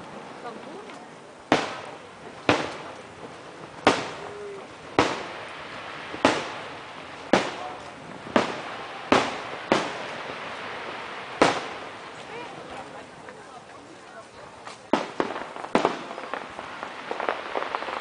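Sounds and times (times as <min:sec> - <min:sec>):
firework shells bursting: 0:01.5 - 0:12.3, 0:14.8 - 0:18.0.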